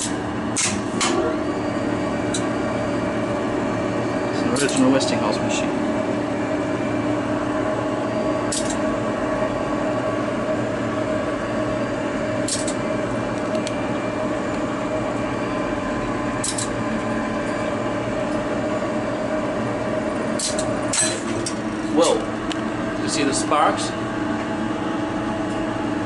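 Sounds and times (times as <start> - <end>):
elevator machine electric hum: 0.0 - 26.0.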